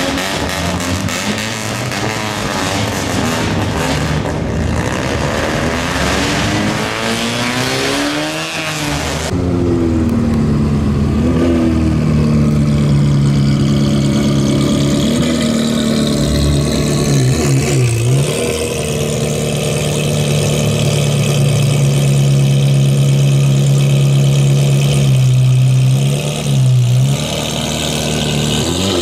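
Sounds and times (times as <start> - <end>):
car engines revving: 0.0 - 29.0
sports car engine running: 9.3 - 29.0.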